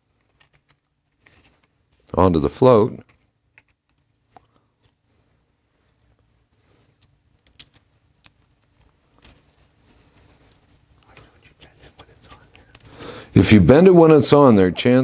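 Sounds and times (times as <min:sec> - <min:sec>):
small metal parts clicking: 0:03.0 - 0:05.0, 0:07.0 - 0:09.7.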